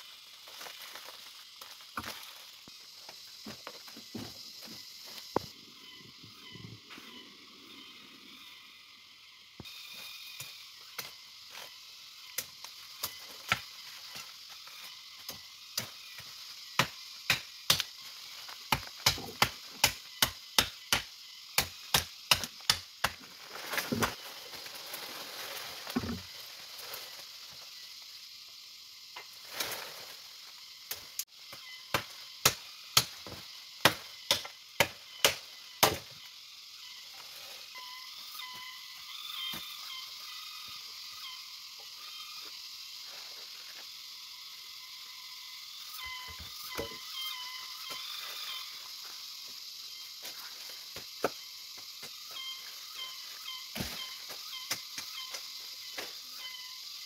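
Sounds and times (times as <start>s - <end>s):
steady hiss: 0.0s - 57.0s
hand tool chopping strikes: 16.8s - 17.9s, 18.7s - 23.2s, 31.9s - 36.0s.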